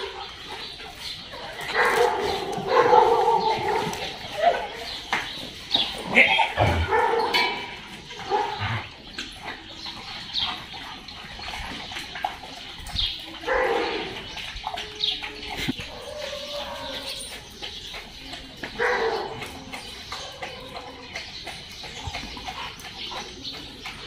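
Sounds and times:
dog barking and yelping: 1.6 - 4.8.

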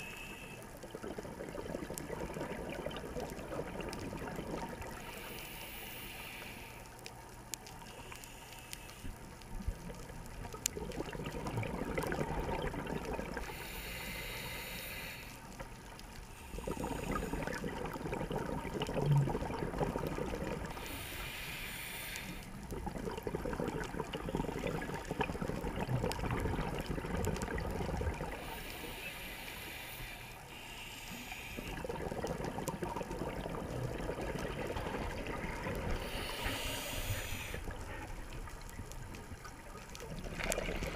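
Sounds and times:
regulator hiss on inhale: 0.0 - 1.0, 4.6 - 9.6, 13.1 - 18.0, 20.5 - 22.7, 28.2 - 39.0
exhaled air bubbling underwater: 0.0 - 40.9.

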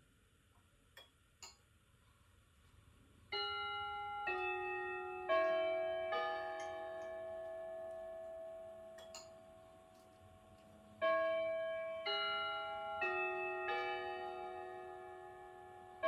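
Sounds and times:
clock chime melody: 3.3 - 16.0.

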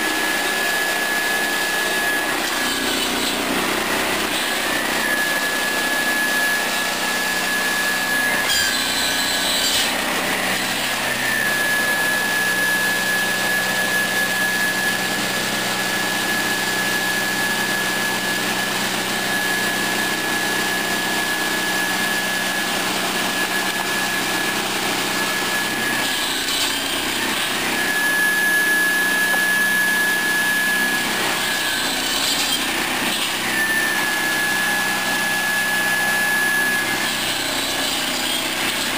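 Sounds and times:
circular saw whining: 0.0 - 38.9
saw cutting through logs: 0.0 - 38.9.

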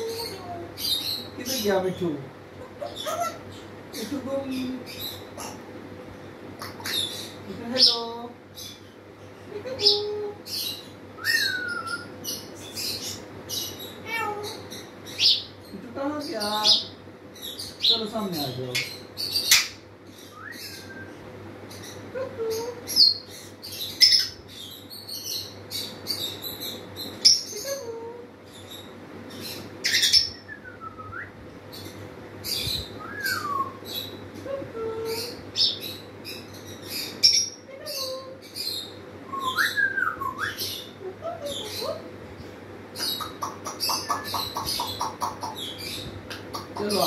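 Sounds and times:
parrot whistling: 11.2 - 12.1, 33.0 - 33.8, 39.3 - 40.7
parrot clicking and chirping: 43.0 - 45.6, 46.3 - 47.0.

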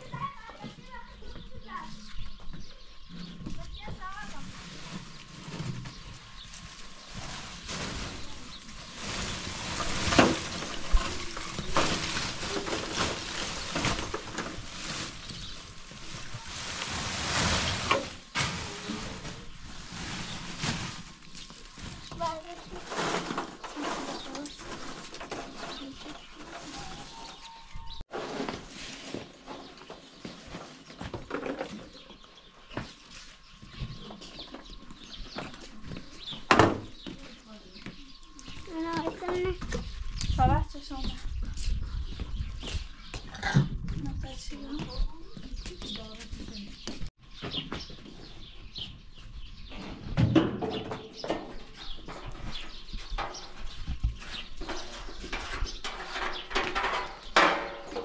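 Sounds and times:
birds chirping: 0.0 - 28.1, 29.1 - 58.0
plastic sack rustling: 3.8 - 30.9
charcoal clattering into metal tray: 9.1 - 15.4
metal tray knocks and scrapes: 54.6 - 58.0.

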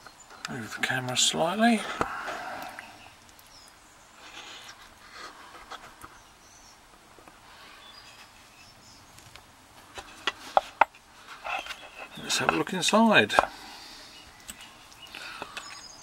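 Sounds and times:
faint rustling: 7.1 - 16.0.

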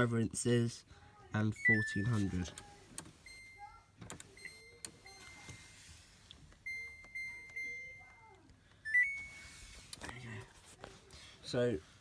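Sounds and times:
high electronic beeps: 1.5 - 2.3, 8.9 - 9.6.

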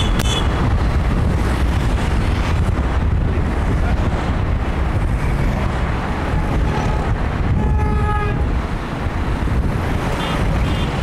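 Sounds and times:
vehicle horn toot: 0.0 - 0.5, 6.4 - 8.4
wind and road noise inside vehicle: 0.0 - 11.0.

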